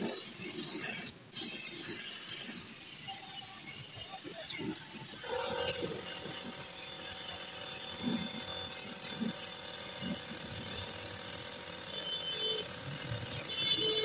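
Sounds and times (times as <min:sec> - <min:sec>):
paint spray gun hissing: 0:00.0 - 0:14.0
steady machine hum: 0:05.1 - 0:14.0.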